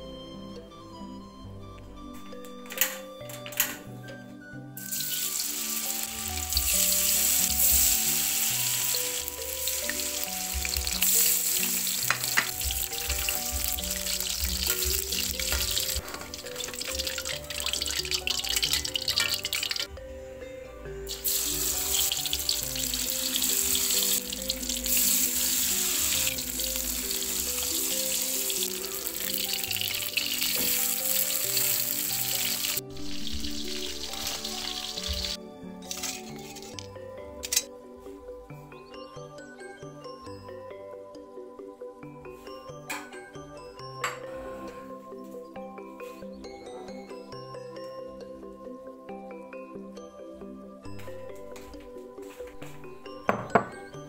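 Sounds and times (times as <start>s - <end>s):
background music: 0.0s - 54.0s
food deep-frying in oil: 4.8s - 19.9s, 21.1s - 35.4s.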